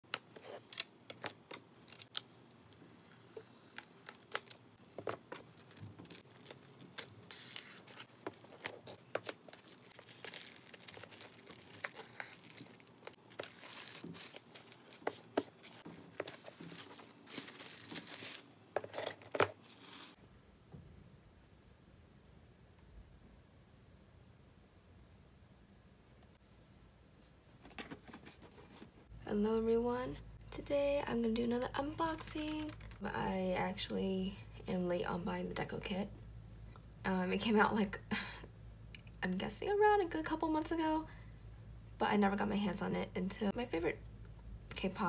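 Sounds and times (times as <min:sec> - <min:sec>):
packaging crackling and tearing: 0:03.8 - 0:20.2
packaging rustling: 0:03.8 - 0:20.2.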